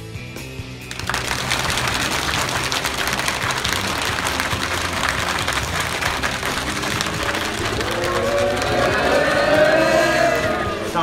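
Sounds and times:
crowd patting drumroll: 0.9s - 11.0s.

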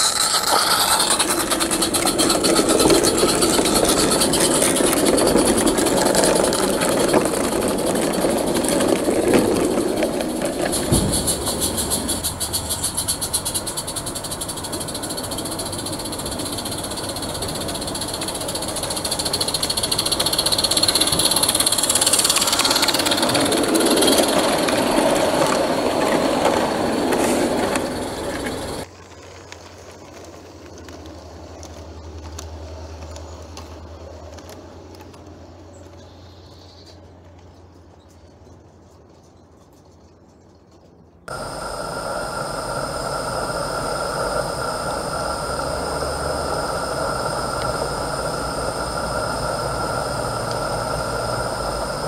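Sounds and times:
steam locomotive chuffing: 0.0s - 28.9s, 41.3s - 52.0s
coach wheels over rail joints: 0.0s - 36.1s, 36.8s - 52.0s
model train rolling on track: 0.0s - 36.1s, 41.3s - 52.0s.

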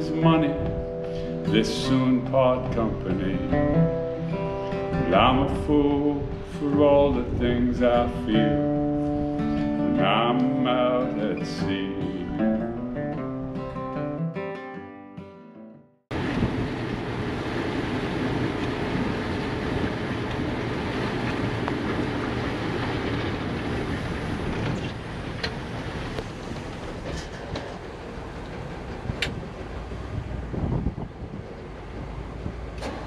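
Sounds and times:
vehicle rumble with rushing noise: 16.1s - 33.0s.

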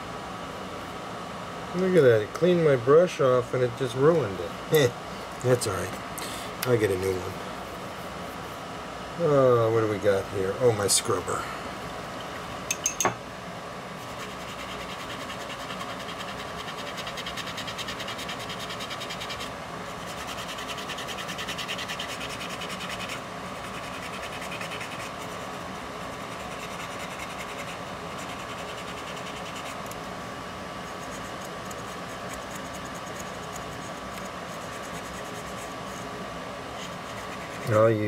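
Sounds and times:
faint steady hum: 0.0s - 38.0s
brush scratching plastic: 14.0s - 30.0s, 30.8s - 37.9s.

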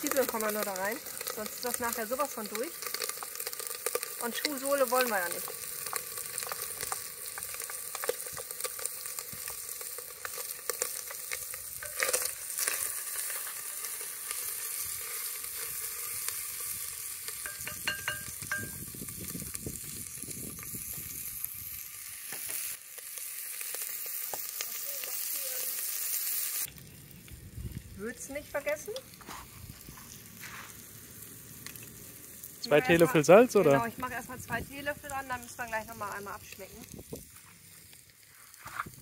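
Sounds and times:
beef sizzling in a pot: 0.0s - 39.0s
stirring clicks and scrapes: 2.8s - 16.4s.

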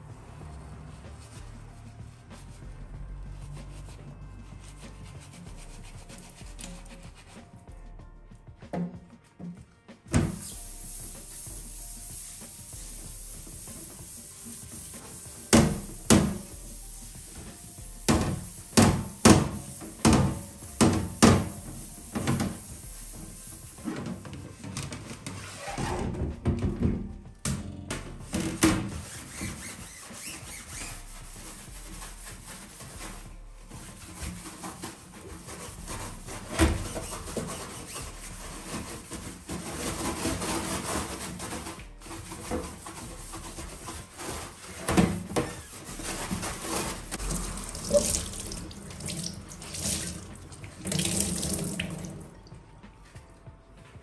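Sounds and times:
water running in steel sink: 10.9s - 24.2s, 46.1s - 52.3s
cloth scrubbing sink: 11.0s - 26.5s, 27.9s - 52.3s.

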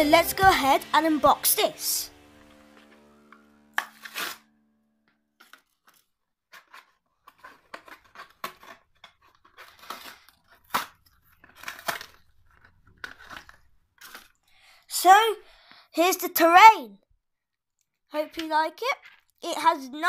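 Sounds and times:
blister pack ripping and crinkling: 3.8s - 4.5s, 5.4s - 14.4s.

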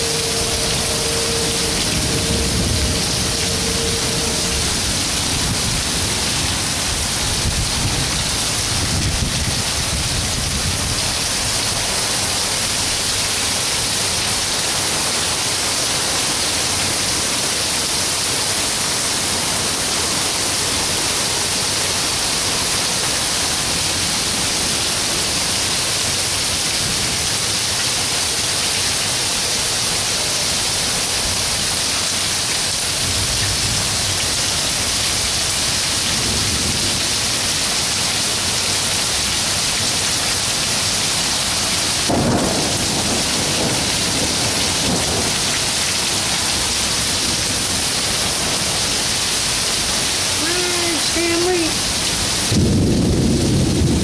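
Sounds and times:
low thunder rumble: 0.0s - 11.2s, 41.9s - 49.6s, 52.4s - 54.0s
heavy rain falling: 0.0s - 54.0s.

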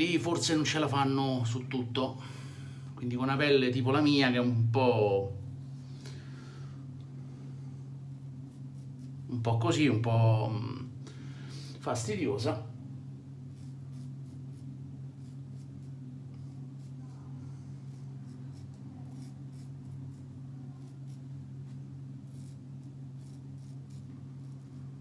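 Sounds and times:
steady low hum: 0.0s - 25.0s
razor scraping stubble: 8.2s - 9.4s, 13.4s - 25.0s.

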